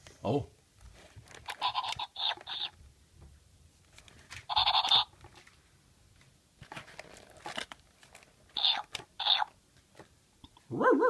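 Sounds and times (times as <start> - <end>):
toy puppy electronic barks: 1.5 - 2.7, 4.5 - 5.1, 8.6 - 9.5.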